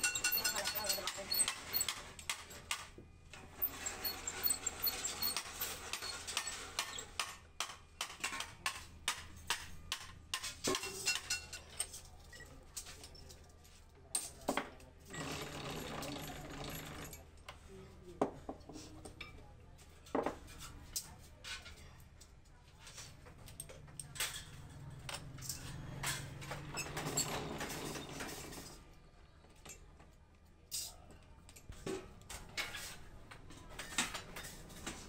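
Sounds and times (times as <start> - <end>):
metallic clinks and rattles: 0.0 - 2.7.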